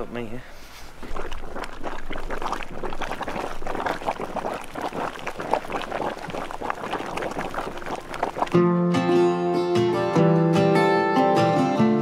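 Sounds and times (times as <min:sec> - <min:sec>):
hot spring water bubbling: 0:00.9 - 0:08.6
acoustic guitar music: 0:08.5 - 0:12.0.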